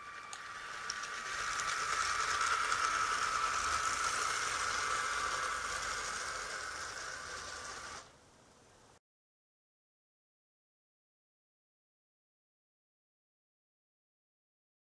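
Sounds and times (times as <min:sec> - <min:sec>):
toy train motor and gears whirring: 0:00.0 - 0:08.2.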